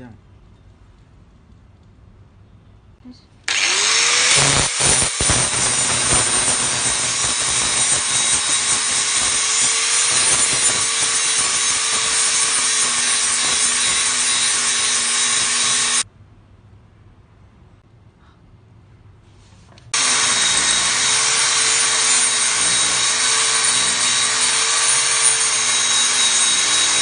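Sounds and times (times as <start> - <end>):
angle grinder grinding steel: 3.5 - 16.0, 20.0 - 27.0.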